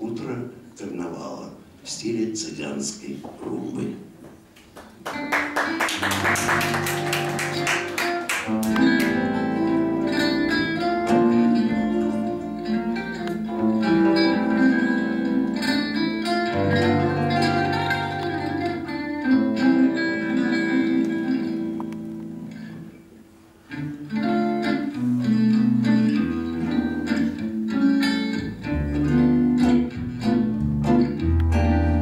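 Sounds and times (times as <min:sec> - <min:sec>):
acoustic guitars strumming: 0:05.1 - 0:32.0
held melody notes: 0:06.0 - 0:32.0
double bass: 0:08.7 - 0:21.6, 0:28.4 - 0:32.0.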